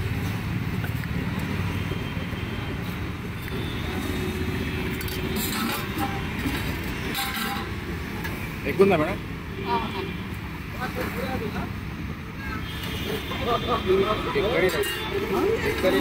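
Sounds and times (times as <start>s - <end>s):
road traffic rumble: 0.0s - 16.0s.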